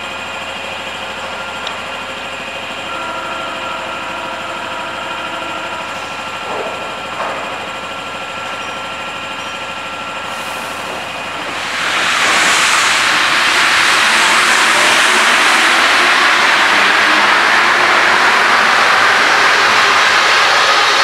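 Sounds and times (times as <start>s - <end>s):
metro train humming: 0.0s - 21.0s
loud even hiss: 10.4s - 15.9s.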